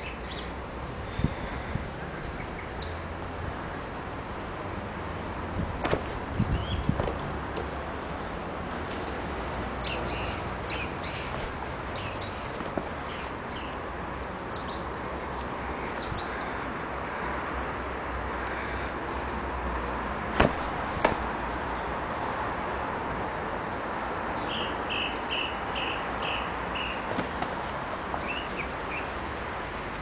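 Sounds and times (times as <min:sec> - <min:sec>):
birds chirping: 0:00.0 - 0:04.4, 0:05.2 - 0:07.6, 0:09.8 - 0:16.7, 0:24.1 - 0:27.1, 0:28.1 - 0:29.4.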